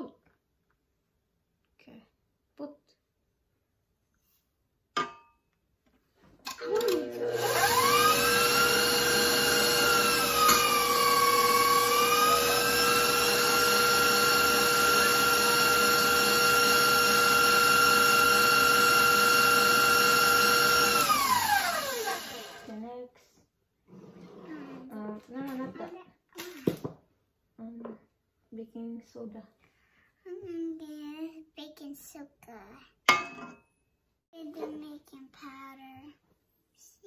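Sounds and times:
electric stand mixer motor whine: 6.5 - 22.7.

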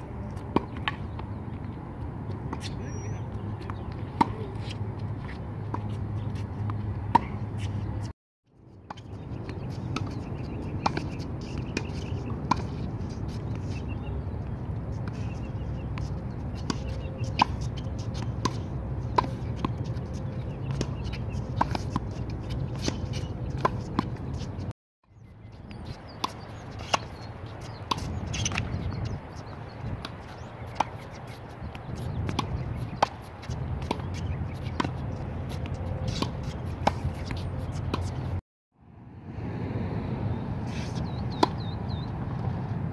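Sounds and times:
tennis ball bouncing: 0.0 - 8.1, 8.9 - 24.7, 25.6 - 38.4, 40.8 - 42.7.

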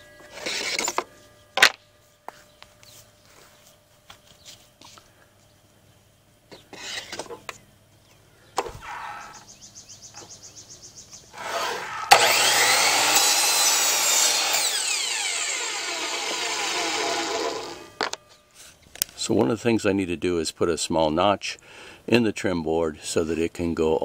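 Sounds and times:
miter saw cutting: 0.2 - 0.9, 11.3 - 18.2.

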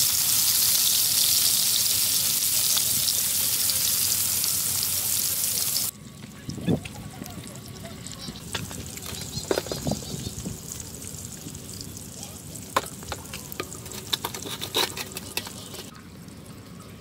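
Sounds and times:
chopsticks clinking on metal bowl: 12.8 - 15.9.

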